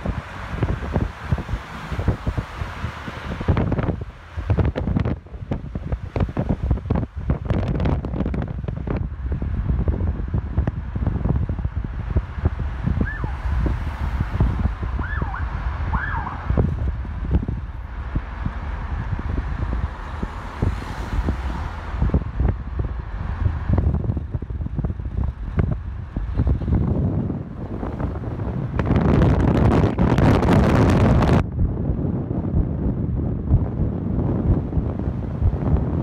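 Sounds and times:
road noise: 0.0s - 36.0s
wind buffeting microphone: 0.0s - 36.0s.

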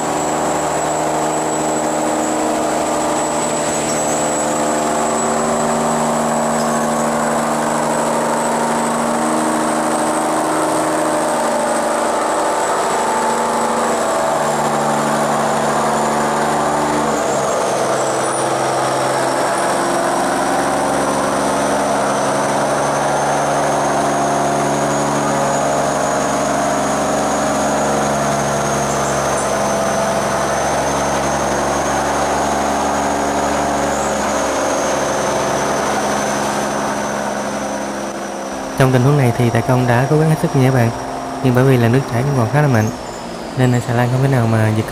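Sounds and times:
diesel engine running hard: 0.0s - 44.9s.

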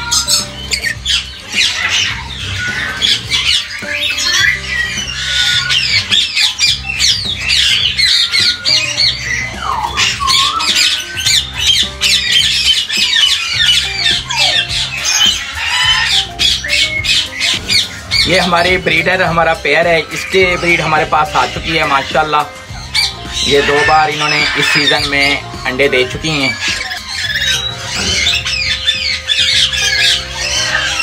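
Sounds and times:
background music: 0.0s - 31.0s
parrots screeching and squawking: 0.0s - 31.0s.

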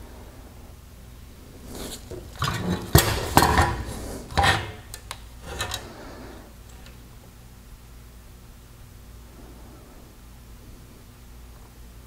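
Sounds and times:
plastic parts clattering on wood: 1.9s - 5.9s.

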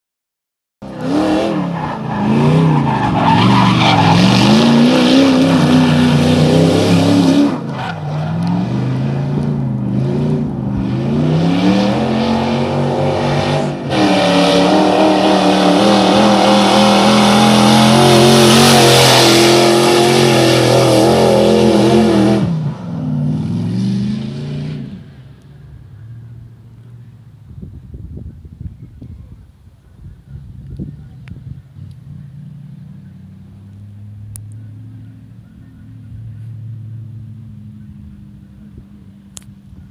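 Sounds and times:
car engine revving hard: 0.8s - 7.7s, 8.3s - 25.0s.

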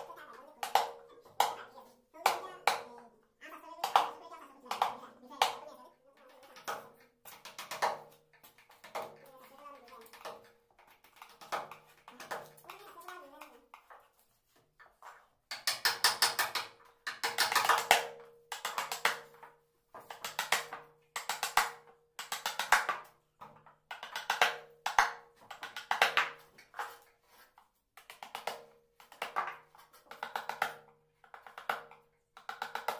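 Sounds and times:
mallet tapping chisel: 15.5s - 19.4s.

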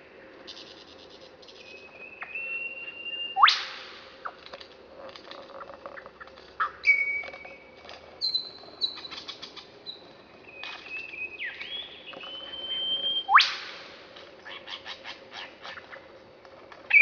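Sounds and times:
lyrebird singing: 0.5s - 3.6s, 5.5s - 13.7s
whistled bird notes: 1.6s - 3.8s, 6.8s - 7.6s, 8.2s - 13.7s
whip-like sweep call: 3.4s - 3.9s, 13.3s - 13.8s.

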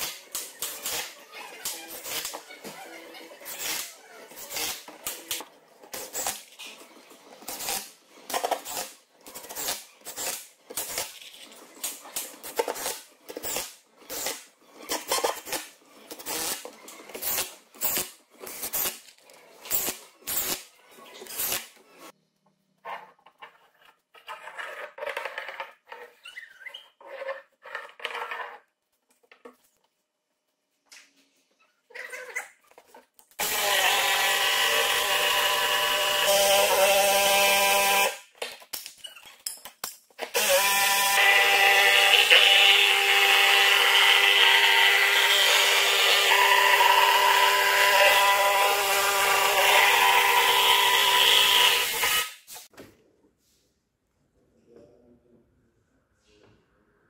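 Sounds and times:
drill driving screws into wood: 0.0s - 2.4s, 3.5s - 6.6s, 7.4s - 11.2s, 11.9s - 19.0s, 19.6s - 21.8s, 33.4s - 38.2s, 40.2s - 52.7s.

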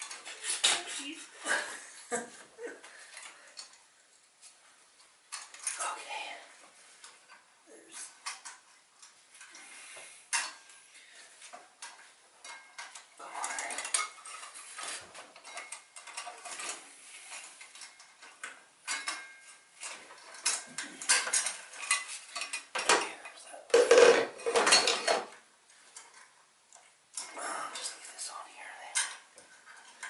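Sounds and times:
metal parts clinking and scraping: 11.8s - 23.1s.

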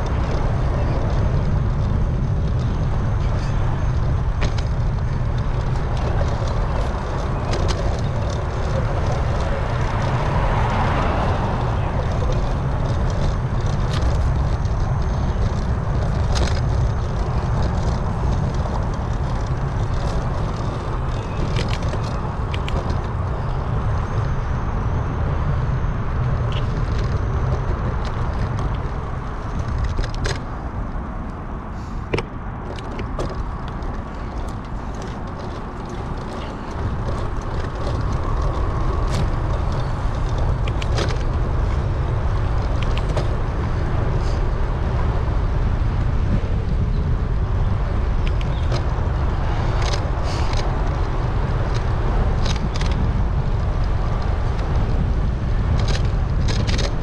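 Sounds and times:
bicycle clicks and rattles: 0.0s - 57.0s
wind on microphone: 0.0s - 57.0s.

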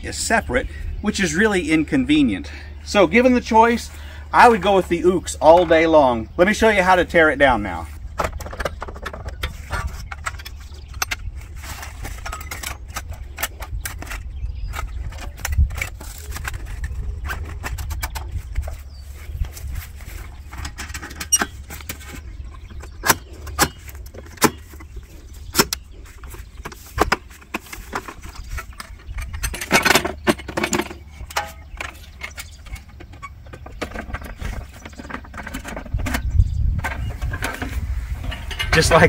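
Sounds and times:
wind rumble on microphone: 7.8s - 39.0s
metal stand folding clicks: 8.2s - 18.7s, 26.6s - 39.0s.

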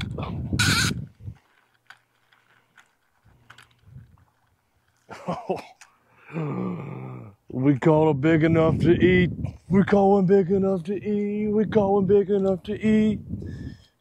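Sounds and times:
man's voice: 7.5s - 13.3s.

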